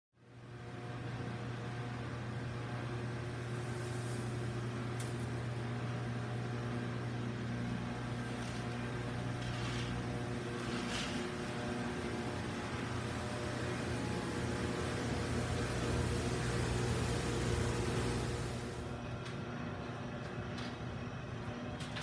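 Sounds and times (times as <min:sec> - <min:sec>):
coffee roaster motor hum: 0:00.2 - 0:22.0.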